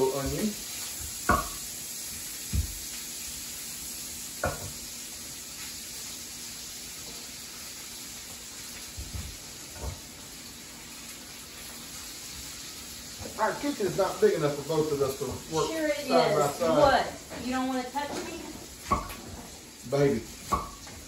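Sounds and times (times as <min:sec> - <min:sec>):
bacon sizzling in skillet: 0:00.0 - 0:21.0
knife chopping on wooden board: 0:18.8 - 0:19.2, 0:20.4 - 0:20.9.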